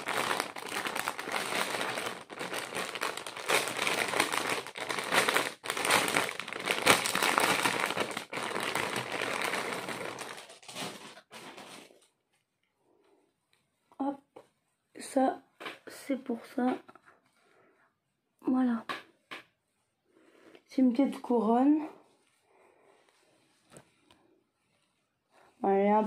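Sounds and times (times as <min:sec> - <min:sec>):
plastic packaging bag crinkling: 0:00.0 - 0:12.2.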